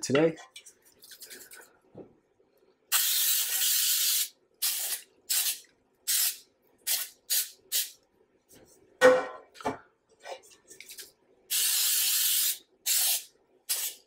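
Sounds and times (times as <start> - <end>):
aerosol spray hissing: 11.5 - 14.0.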